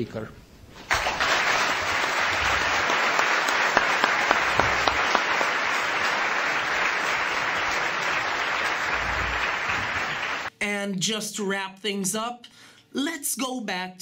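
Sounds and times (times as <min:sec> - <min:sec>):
audience applauding: 0:00.9 - 0:10.5.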